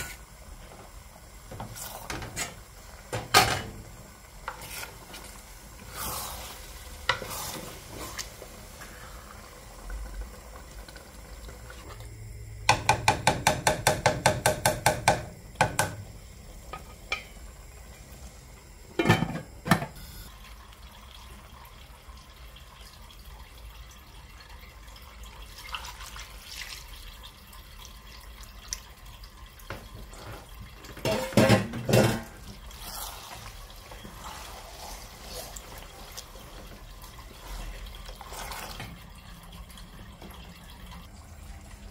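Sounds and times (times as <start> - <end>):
wooden spoon stirring rice in pot: 4.4 - 8.4
spoon knocking metal pot: 12.7 - 16.0.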